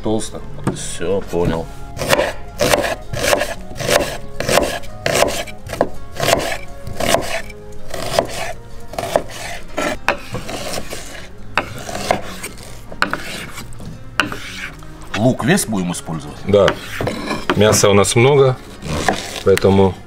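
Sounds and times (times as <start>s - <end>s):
knife slicing on wooden board: 2.0s - 14.8s, 16.7s - 17.6s, 18.7s - 19.5s.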